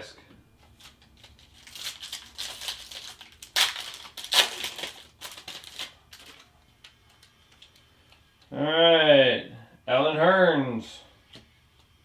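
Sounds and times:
plastic wrapper crinkling: 0.8s - 7.8s.

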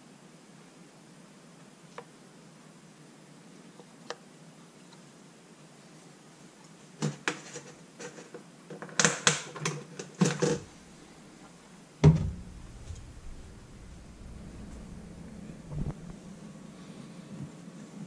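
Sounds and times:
lamp thumping into metal sink: 12.0s - 13.0s.

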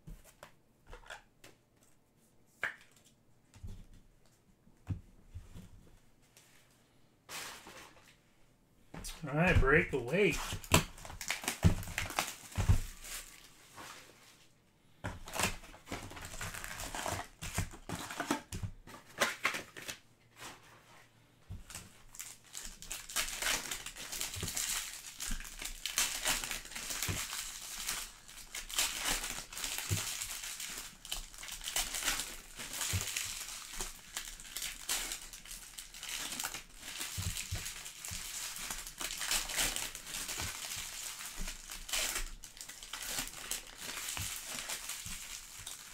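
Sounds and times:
foil packs crinkling: 9.2s - 13.5s, 15.2s - 20.0s, 21.7s - 45.9s.

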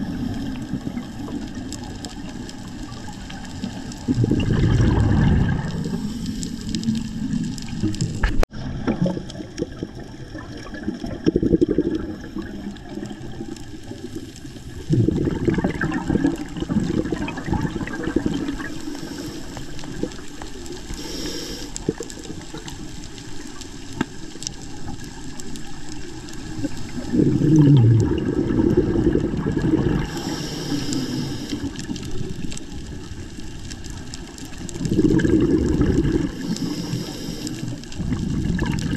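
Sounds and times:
bubbly underwater exhalations: 2.8s - 22.7s, 26.5s - 32.6s, 34.6s - 38.9s
regulator hissing inhalations: 18.8s - 19.9s, 20.9s - 22.0s, 30.0s - 32.0s, 36.3s - 37.9s.

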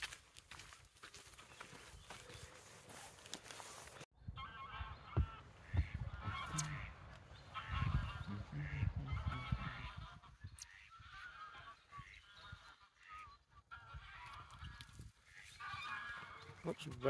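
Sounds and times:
wind rumble on microphone: 4.2s - 10.6s
geese honking: 4.2s - 17.0s.

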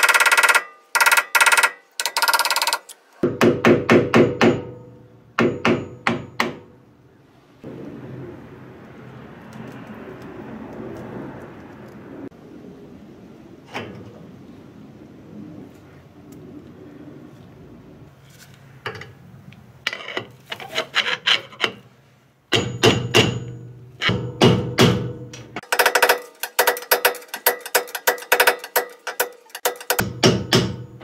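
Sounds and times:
steel bar knocking on metal: 22.5s - 31.0s.

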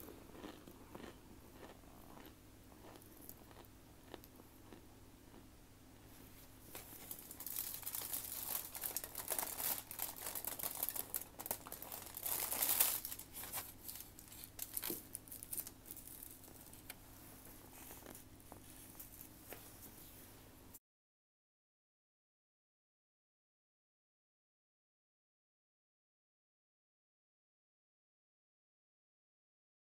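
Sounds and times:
crunchy food being chewed: 0.0s - 17.0s, 17.6s - 19.4s.

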